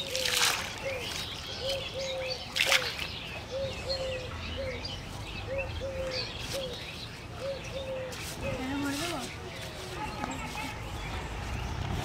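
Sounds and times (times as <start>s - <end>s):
water splashing into pond: 0.0s - 1.2s, 2.5s - 3.2s
small birds chirping: 0.0s - 12.0s
dove cooing: 3.5s - 4.8s.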